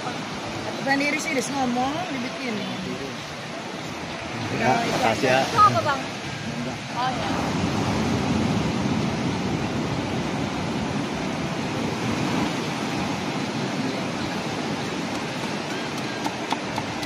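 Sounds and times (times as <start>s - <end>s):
sea surf on beach: 0.0s - 17.0s.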